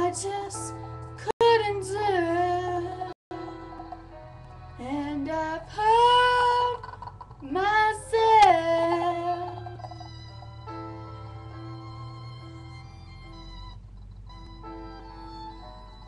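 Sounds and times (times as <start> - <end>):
slow instrumental backing track: 0.0 - 16.0
woman singing wordless phrases: 4.8 - 6.8, 7.4 - 9.6.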